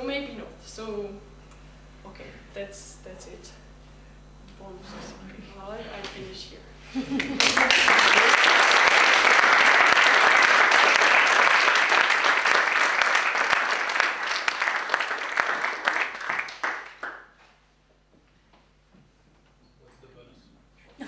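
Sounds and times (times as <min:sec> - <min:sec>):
audience applauding: 0:07.2 - 0:17.4.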